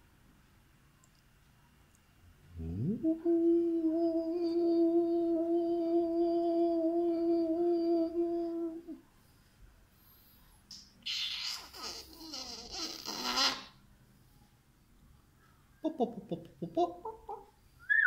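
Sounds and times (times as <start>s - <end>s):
man humming: 2.5s - 9.0s.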